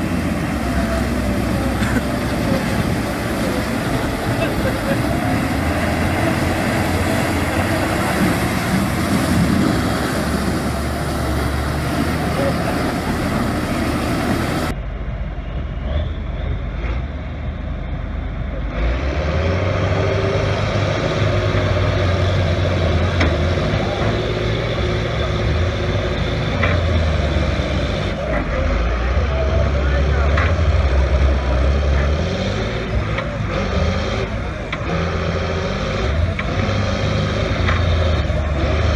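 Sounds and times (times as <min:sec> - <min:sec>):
tyres churning: 0:00.0 - 0:14.8
tractor diesel engines straining: 0:00.0 - 0:38.9.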